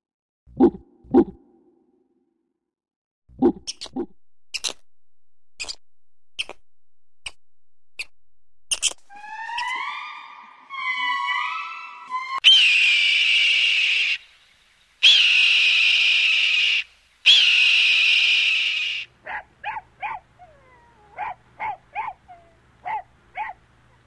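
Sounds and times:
hawk screaming: 9.2s - 14.2s
hawk yelps: 12.4s - 14.2s, 15.0s - 24.0s.

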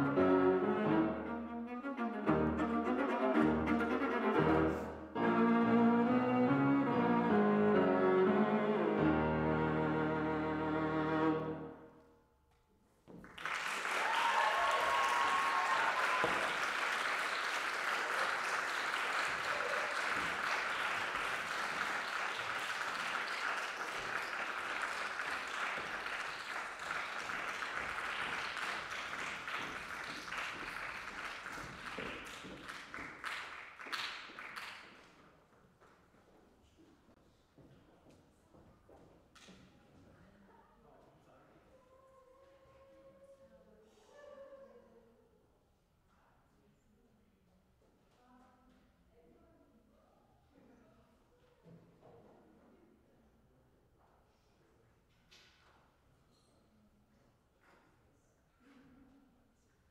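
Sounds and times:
viola and piano chord: 0.0s - 11.8s
audience applause: 13.3s - 35.0s.

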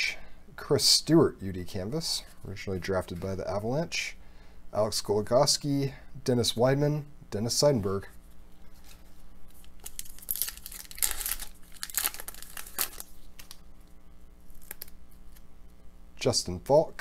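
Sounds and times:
wrapper tearing and crinkling: 8.8s - 13.7s, 14.4s - 15.4s.

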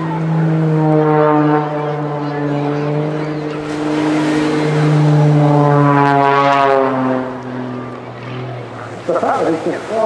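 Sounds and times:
propeller plane flying past: 0.0s - 10.0s.

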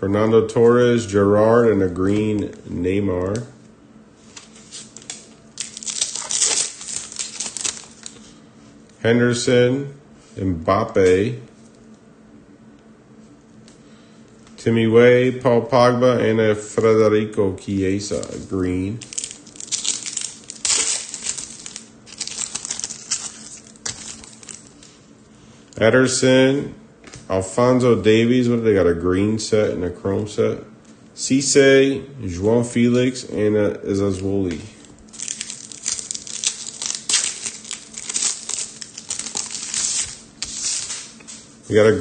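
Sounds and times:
cards shuffled by hand: 4.3s - 8.2s, 35.2s - 41.4s
foil wrapper crinkling: 4.3s - 8.3s, 18.1s - 25.0s, 34.5s - 41.4s.

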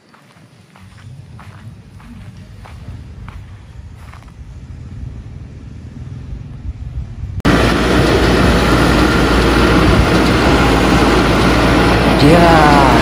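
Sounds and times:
faint low outdoor rumble: 0.0s - 7.5s
diesel engine running loud: 0.9s - 13.0s.

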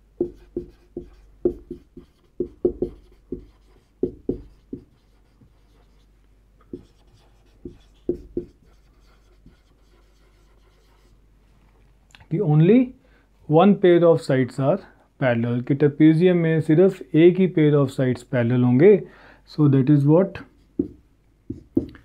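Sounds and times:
marker squeaking on whiteboard: 0.2s - 6.0s, 6.7s - 11.1s.

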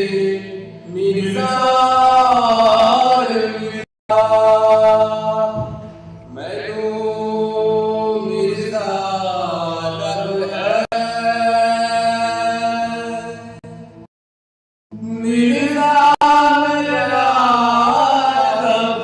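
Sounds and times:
long held chant-like singing: 15.0s - 19.0s.

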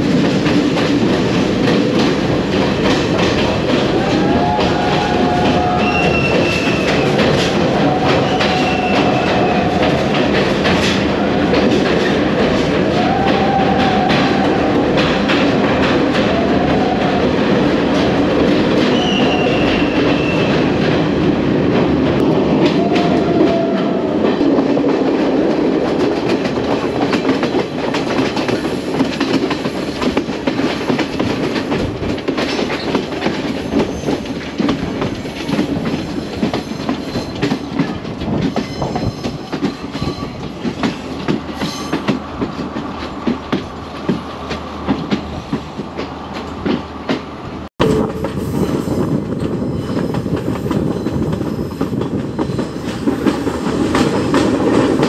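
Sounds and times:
train wheels clattering on rails: 0.0s - 55.0s.

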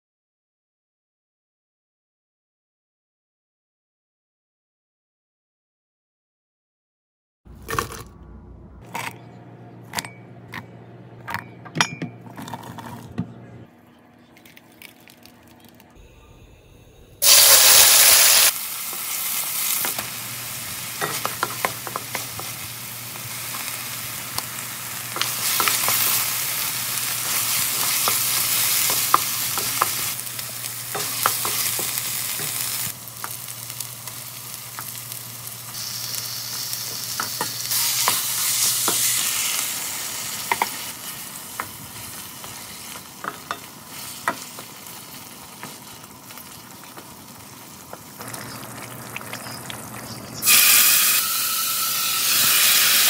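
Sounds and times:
paste sizzling in a frying pan: 17.2s - 53.0s
blender running: 50.4s - 53.0s.

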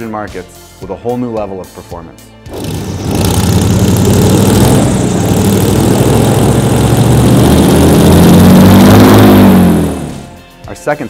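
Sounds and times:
airboat engine drone: 2.5s - 10.4s.

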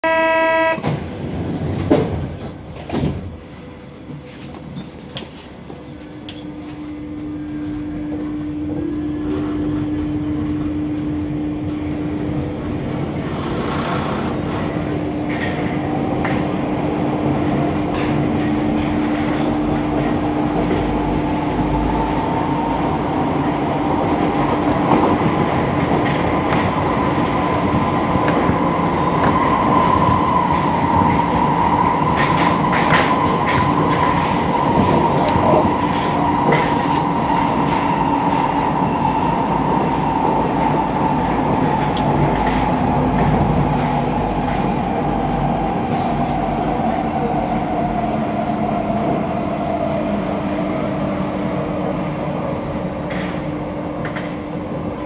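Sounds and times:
train motor whine: 0.0s - 1.1s, 4.0s - 15.8s
train running noise: 0.0s - 55.0s
wheels clicking over rails: 24.0s - 46.4s.

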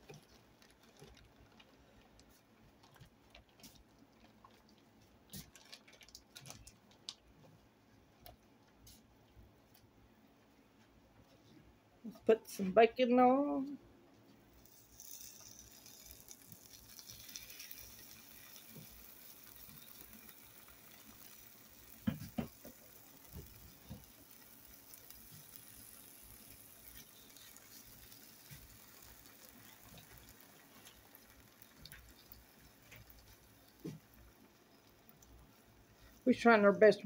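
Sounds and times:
bacon sizzling in a frying pan: 14.6s - 36.5s.

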